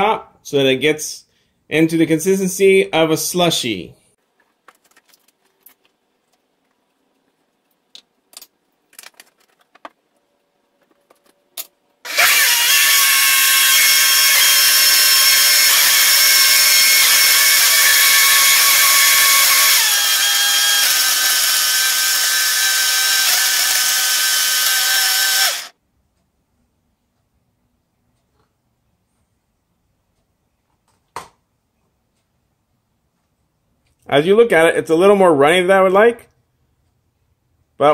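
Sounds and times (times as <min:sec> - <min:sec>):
blender crushing ice: 0:12.1 - 0:25.7.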